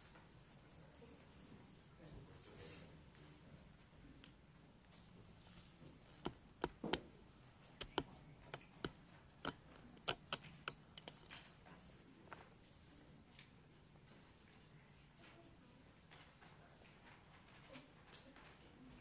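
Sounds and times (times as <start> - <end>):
sharp clicks and knocks: 6.1 - 11.4.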